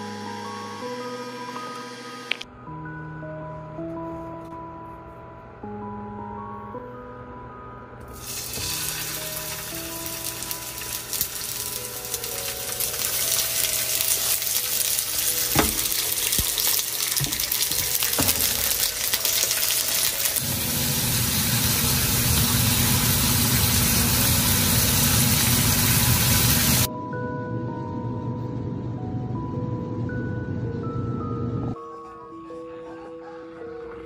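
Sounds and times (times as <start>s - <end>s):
beef sizzling in hot oil: 8.1s - 26.9s
low rough sizzle: 8.1s - 26.9s
chopsticks knocking on pan: 15.5s - 16.6s, 17.2s - 18.8s.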